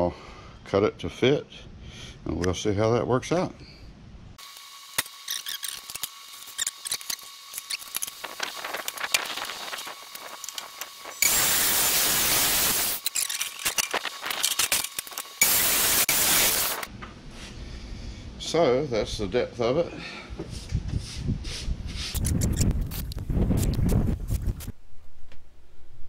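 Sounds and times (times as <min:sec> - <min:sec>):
circular saw cutting wood: 0:04.4 - 0:16.9.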